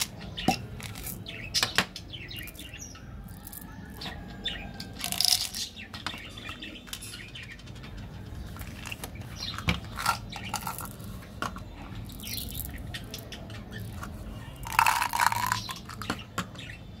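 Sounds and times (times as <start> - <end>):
candies pouring into jar: 5.0 - 5.7, 9.9 - 11.1, 13.9 - 16.0
candies rattling in plastic bottle: 5.0 - 5.7, 8.6 - 11.2, 13.9 - 16.2.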